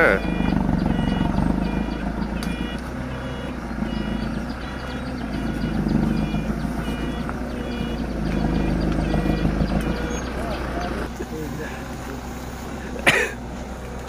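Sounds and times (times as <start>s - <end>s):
reversing alarm beeps: 0.0s - 10.9s
forklift engine running: 0.0s - 14.0s.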